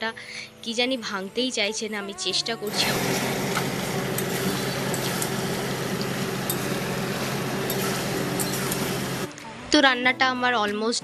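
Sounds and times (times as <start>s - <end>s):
food sizzling in oil: 2.7s - 9.3s
steady low hum: 2.7s - 9.3s.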